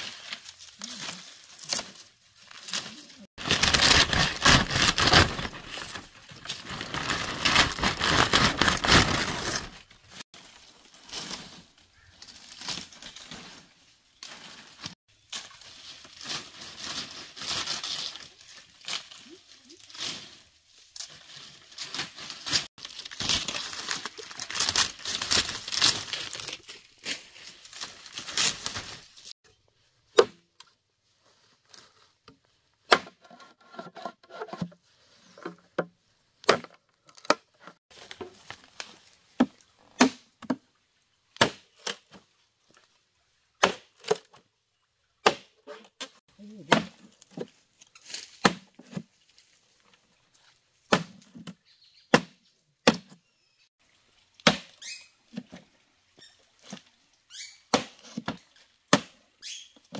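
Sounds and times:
handling and rustling: 0.0 - 29.7, 30.6 - 40.7.

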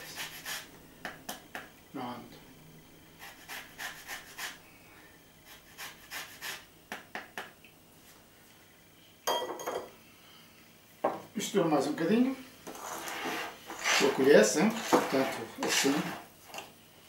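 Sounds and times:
grater scraping: 12.7 - 16.2.

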